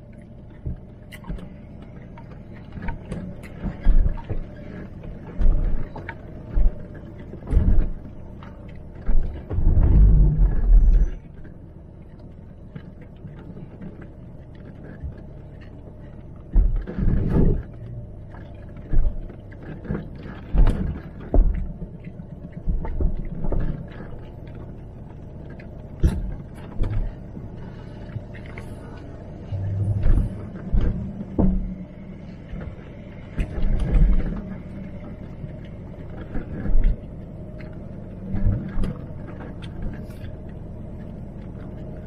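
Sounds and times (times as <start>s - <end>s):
engine and drivetrain hum: 0.0s - 42.0s
suspension thumps and knocks: 18.8s - 22.0s, 29.5s - 34.5s.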